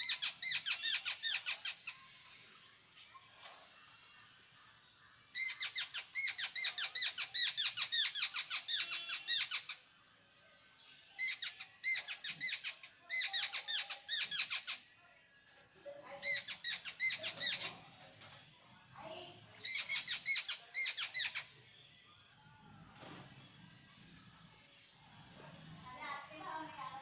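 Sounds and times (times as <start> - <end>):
bird chattering: 5.4 - 9.8, 11.2 - 14.8, 16.2 - 17.9, 19.6 - 21.5.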